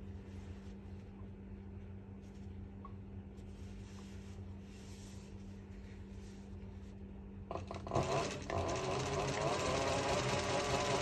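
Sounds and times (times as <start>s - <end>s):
material rubbing: 0.0s - 7.1s
sewing machine humming: 7.5s - 11.0s
sewing machine stitching: 7.5s - 11.0s.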